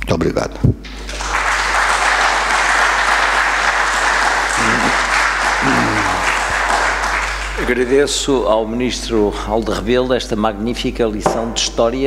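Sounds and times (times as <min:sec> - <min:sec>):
audience applauding: 0:00.9 - 0:08.3
person speaking: 0:04.6 - 0:06.6.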